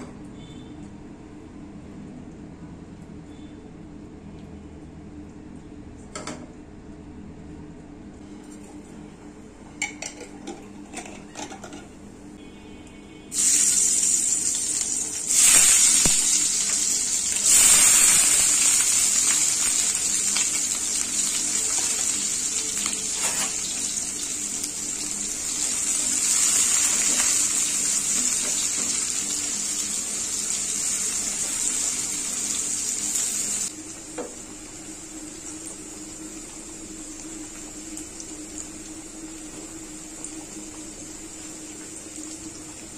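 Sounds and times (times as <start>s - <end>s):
onions sizzling in hot oil: 13.3s - 42.9s.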